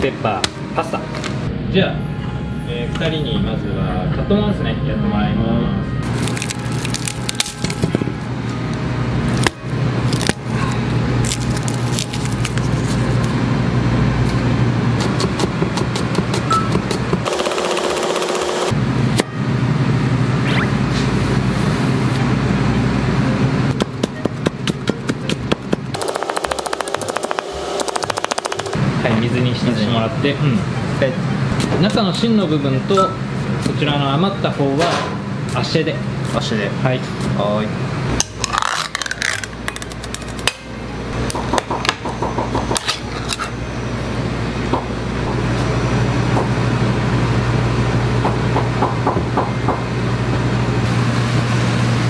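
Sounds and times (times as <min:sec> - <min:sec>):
steady background noise: 0:00.0 - 0:52.0
knife chopping on cutting board: 0:15.0 - 0:17.1, 0:23.8 - 0:28.6.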